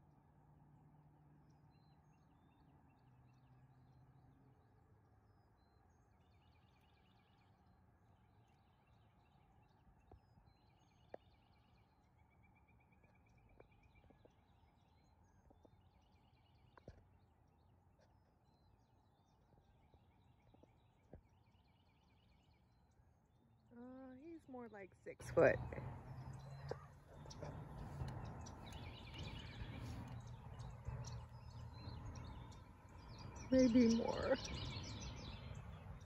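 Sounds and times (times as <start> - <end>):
distant birdsong: 0.0 - 36.0.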